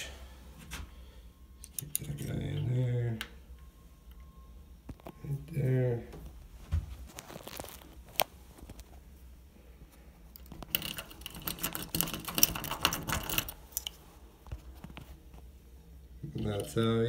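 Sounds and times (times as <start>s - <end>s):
lock pick scraping and clicking: 10.4s - 14.0s.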